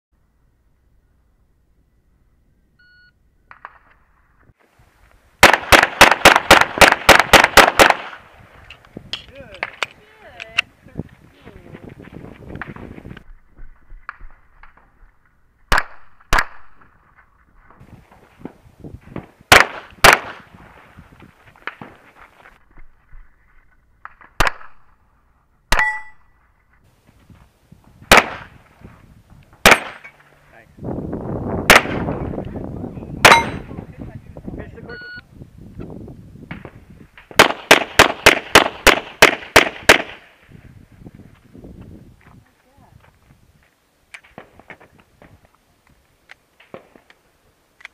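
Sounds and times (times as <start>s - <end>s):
pistol shots: 5.4s - 8.2s, 15.7s - 16.8s, 19.5s - 20.4s, 28.1s - 28.5s, 29.6s - 30.1s, 31.7s - 32.2s, 33.2s - 33.6s, 37.3s - 40.2s
handgun shots: 29.6s - 30.1s, 33.2s - 33.6s.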